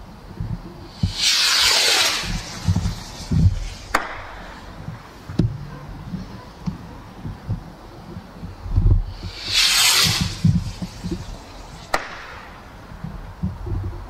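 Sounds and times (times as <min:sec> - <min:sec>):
firework crack: 0:00.8 - 0:06.8, 0:09.0 - 0:13.6
firework rocket hissing up: 0:00.9 - 0:05.4, 0:09.0 - 0:13.0
firework bang: 0:00.9 - 0:05.5, 0:09.1 - 0:12.8.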